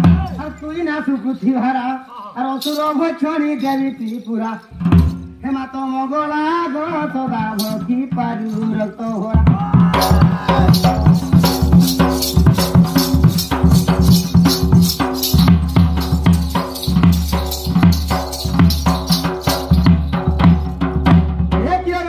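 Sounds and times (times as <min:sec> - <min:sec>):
barrel drum beaten by hand: 0:04.8 - 0:05.4, 0:09.4 - 0:21.8.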